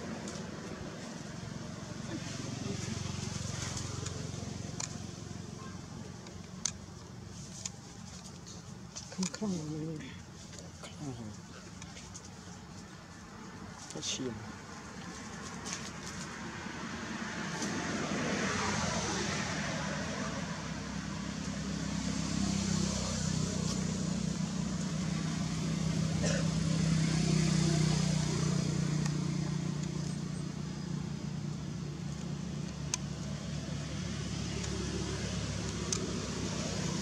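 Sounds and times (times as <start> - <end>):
vehicle engine passing by: 0.0 - 5.6, 15.6 - 37.0.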